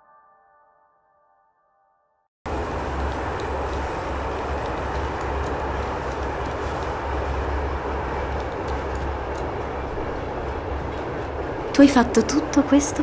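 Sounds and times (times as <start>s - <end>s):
train rumbling: 2.5s - 13.0s.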